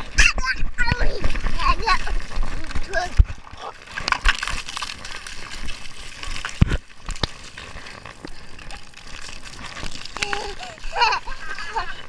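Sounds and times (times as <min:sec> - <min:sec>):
fountain water spraying: 0:03.8 - 0:12.0.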